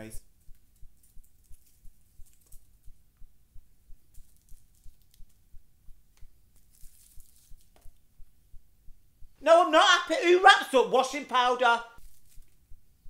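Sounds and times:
sweet wrapper crinkling: 0.4 - 3.0, 4.1 - 5.4, 6.2 - 8.1, 12.0 - 12.7.

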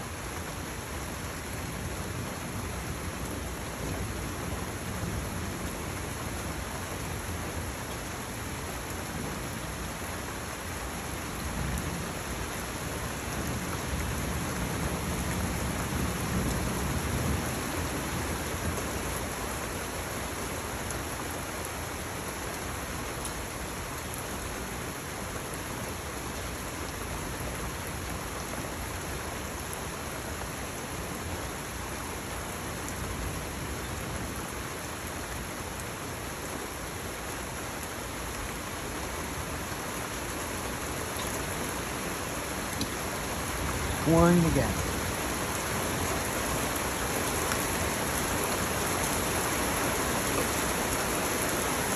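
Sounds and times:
heavy rain falling: 0.0 - 51.9.

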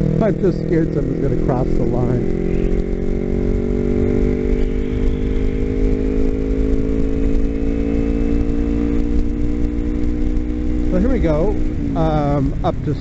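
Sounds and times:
motorcycle engine cruising: 0.0 - 13.0.

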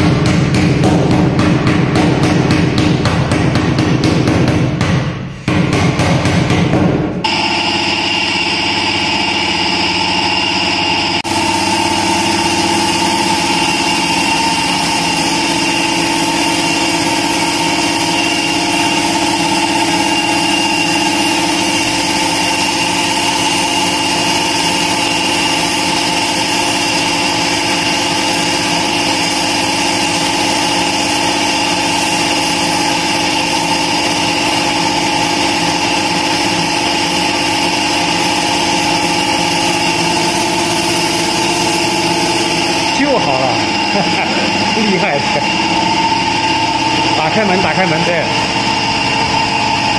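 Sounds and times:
air compressor humming: 0.0 - 49.9
spray gun hissing: 11.2 - 46.4.

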